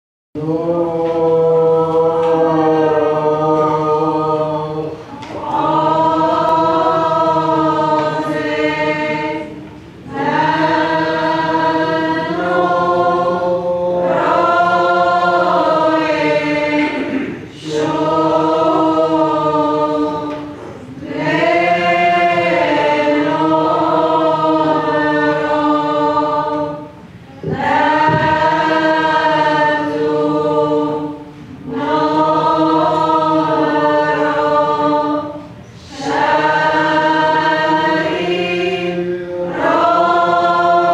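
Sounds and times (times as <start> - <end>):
choir singing a hymn: 0.4 - 40.9.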